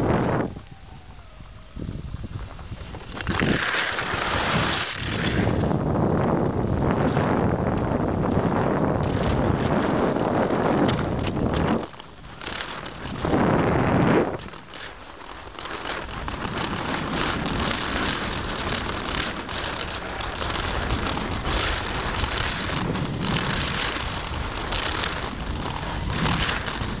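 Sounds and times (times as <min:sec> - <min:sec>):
wind buffeting microphone: 0:00.0 - 0:27.0
skis hissing on crusted snow: 0:02.2 - 0:05.5, 0:14.6 - 0:27.0.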